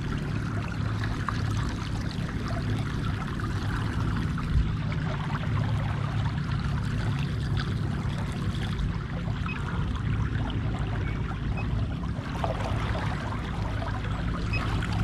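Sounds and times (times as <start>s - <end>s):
steady low hum: 0.0s - 15.0s
water trickling along kayak hull: 0.0s - 15.0s.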